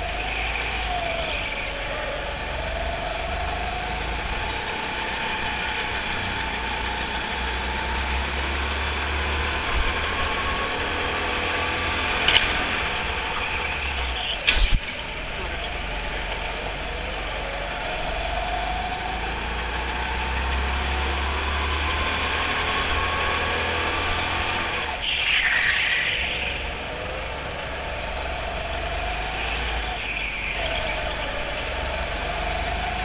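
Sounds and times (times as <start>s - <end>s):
go-kart engines running: 0.0s - 33.0s.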